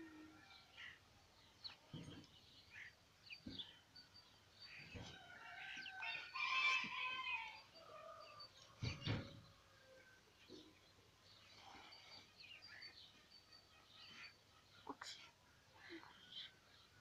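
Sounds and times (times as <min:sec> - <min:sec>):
small birds chirping: 0:00.5 - 0:17.0
rooster crowing: 0:05.2 - 0:08.5.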